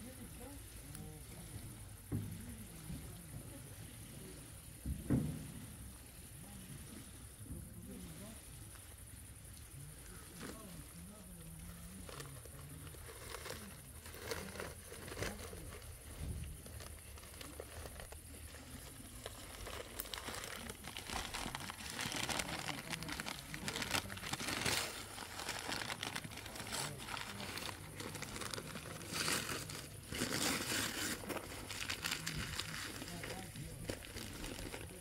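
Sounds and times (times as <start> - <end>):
bag rustling and crinkling: 12.0 - 35.0.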